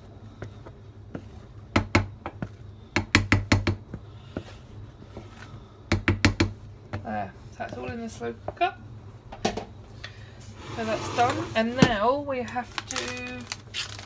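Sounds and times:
spatula scraping mixing bowl: 10.6 - 12.0.

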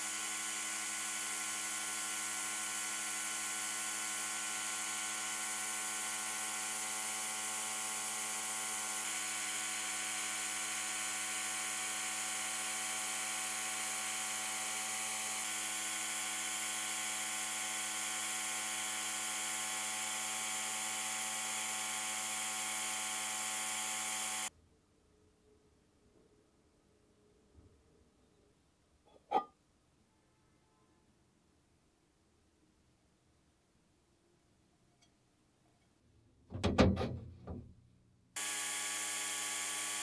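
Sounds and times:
sandblaster hissing: 0.0 - 24.5, 38.4 - 40.0.

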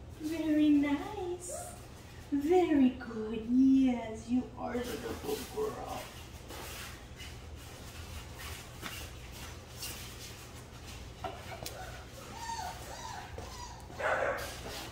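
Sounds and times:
footsteps shuffling on tile floor: 4.6 - 14.9.

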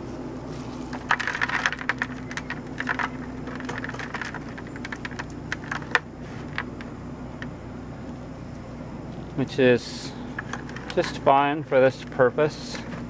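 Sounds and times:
low hum: 0.0 - 13.0
crumbling dirt clicks: 0.5 - 7.6, 10.3 - 11.3.

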